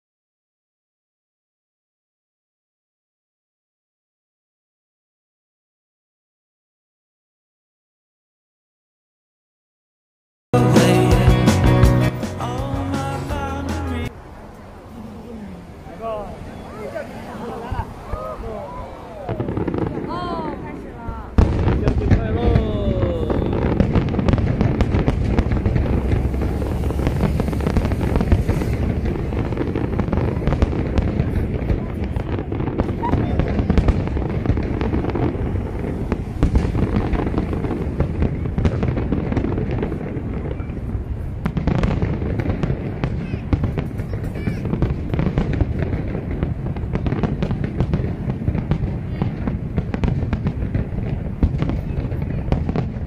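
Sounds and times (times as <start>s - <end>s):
fireworks bangs and crackles: 15.7s - 53.0s.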